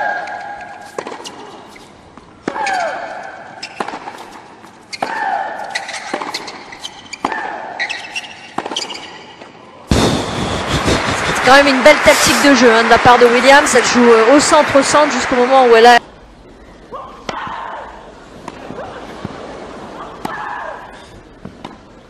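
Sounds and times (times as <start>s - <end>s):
tennis ball hitting racket: 0.2s - 1.8s, 2.4s - 9.0s.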